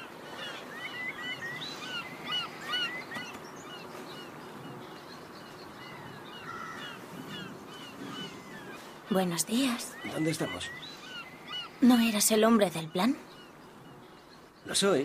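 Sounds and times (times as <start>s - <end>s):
birds chirping: 0.0s - 15.0s
steady outdoor hiss: 0.0s - 15.0s.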